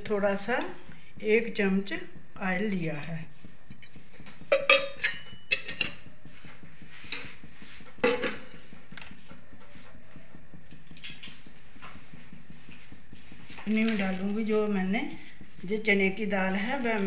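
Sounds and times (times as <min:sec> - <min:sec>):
steel utensils knocking on pan: 0:03.8 - 0:06.0.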